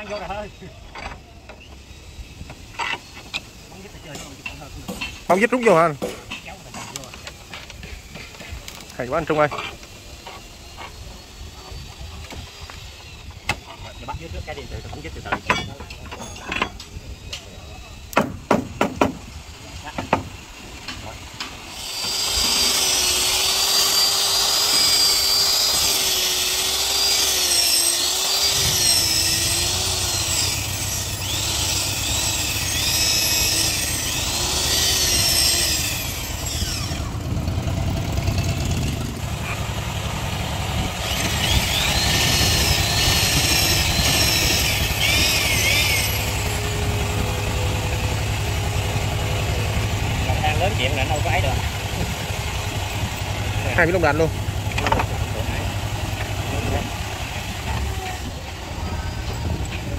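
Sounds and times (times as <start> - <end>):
electric drill boring into wood: 6.9 - 59.9
low engine hum: 33.8 - 59.9.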